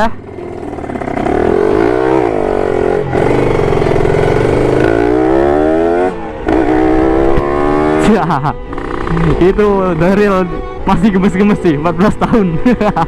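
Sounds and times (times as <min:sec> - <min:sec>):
motorcycle engine accelerating: 0:00.0 - 0:10.3.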